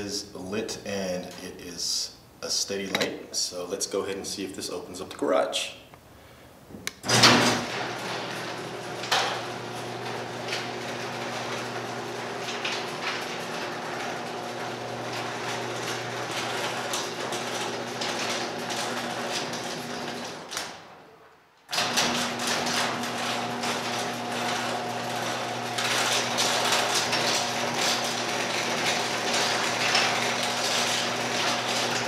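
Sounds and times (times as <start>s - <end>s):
garage door opener motor humming: 7.0s - 21.1s, 21.7s - 32.0s
garage door moving on tracks: 7.0s - 32.0s.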